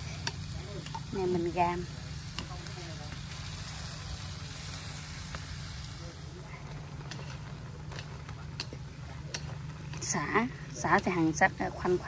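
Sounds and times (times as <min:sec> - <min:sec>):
low fire rumble: 0:00.0 - 0:12.0
pork sizzling in a wok: 0:00.0 - 0:12.0
chopsticks clicking on a pan: 0:00.1 - 0:01.6, 0:02.3 - 0:02.8, 0:07.0 - 0:11.1.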